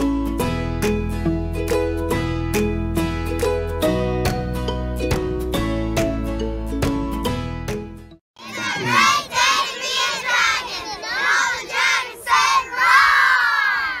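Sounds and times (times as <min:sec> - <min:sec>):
girls shouting a cheer: 0:08.4 - 0:14.0.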